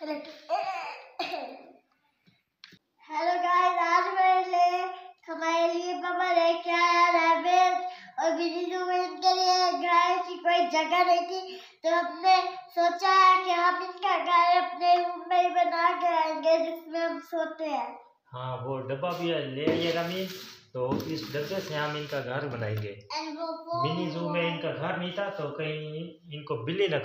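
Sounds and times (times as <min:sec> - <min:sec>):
child singing: 0:03.1 - 0:17.9, 0:23.1 - 0:24.8.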